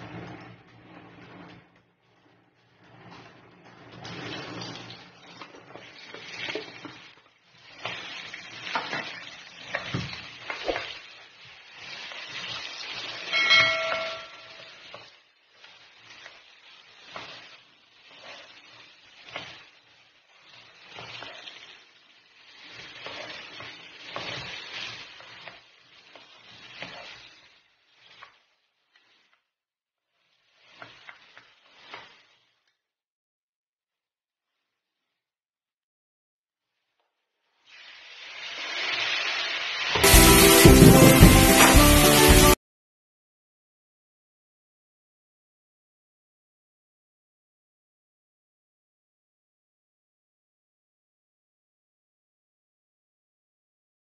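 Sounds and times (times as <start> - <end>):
spatula scraping a pan: 0.0 - 29.4, 30.2 - 32.6
food frying in a pan: 0.0 - 32.9, 36.7 - 42.6
metal utensil clinking on pan: 13.3 - 14.8.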